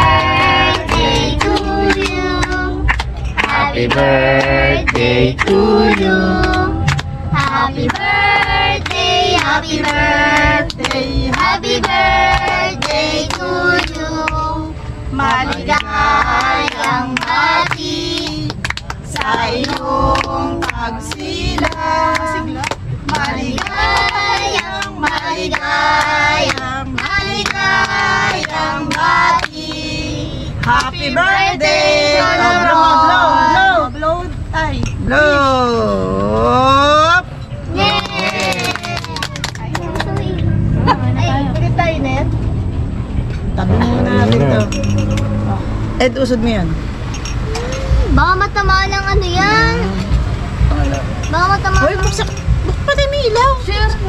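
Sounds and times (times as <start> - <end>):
song with singing over a beat: 0.0 - 14.6.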